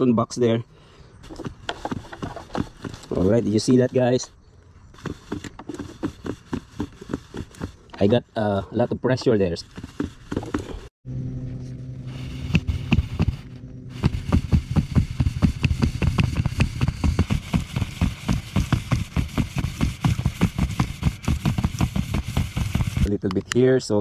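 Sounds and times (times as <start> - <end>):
low hum of spinning spool: 9.4 - 23.1.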